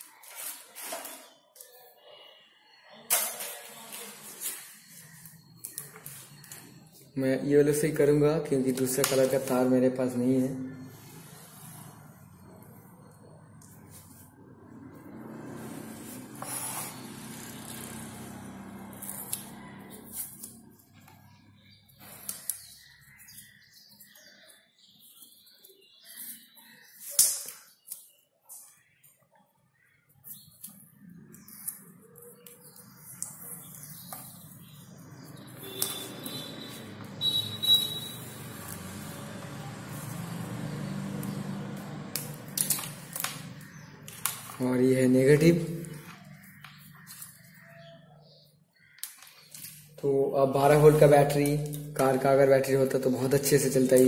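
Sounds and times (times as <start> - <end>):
wires rustling: 30.2 - 47.8.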